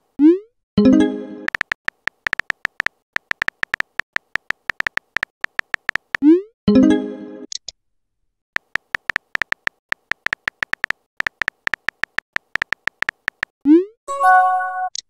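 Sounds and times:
soft keyboard clicks: 1.5s - 6.2s, 8.6s - 13.5s.

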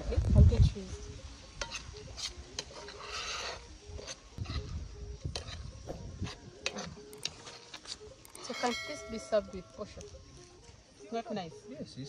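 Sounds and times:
spoon scraping frying pan: 1.6s - 4.7s, 5.3s - 9.8s.

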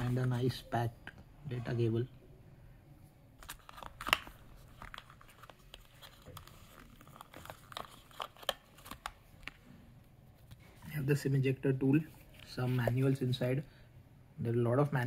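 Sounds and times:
packaging crinkling: 3.4s - 9.6s.

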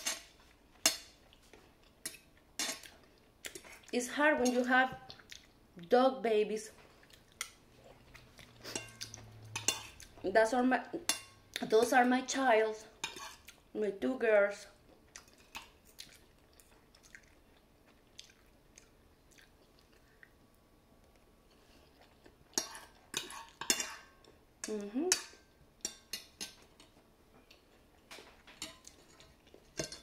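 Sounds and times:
chewing noodles: 14.8s - 20.4s, 21.1s - 23.6s
cutlery clinking on a plate: 22.6s - 24.1s, 28.1s - 30.0s.

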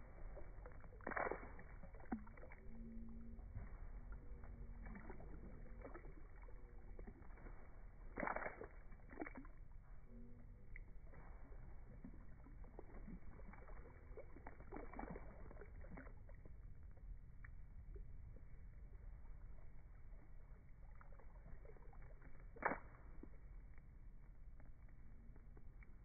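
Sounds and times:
rubber boots splashing through puddle: 0.0s - 16.5s, 20.8s - 24.7s.

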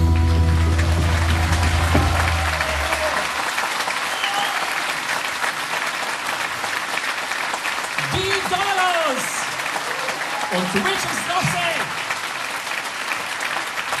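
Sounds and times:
band chord: 0.0s - 3.0s
audience applauding: 0.0s - 14.0s.

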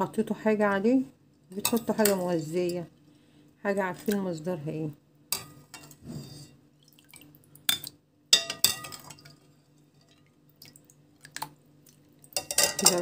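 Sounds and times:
pot clinking: 5.3s - 6.0s, 7.7s - 9.4s, 12.3s - 13.0s.

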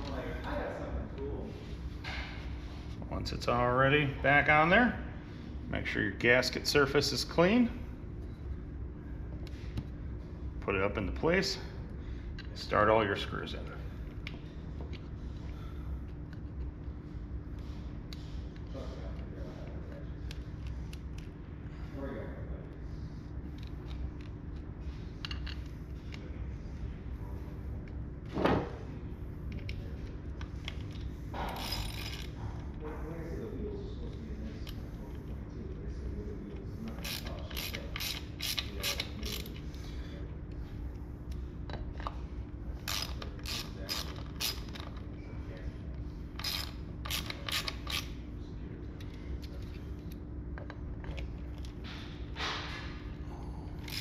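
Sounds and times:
hand ratchet clicking: 31.6s - 32.3s, 37.0s - 39.6s, 42.8s - 45.0s, 46.4s - 48.1s.

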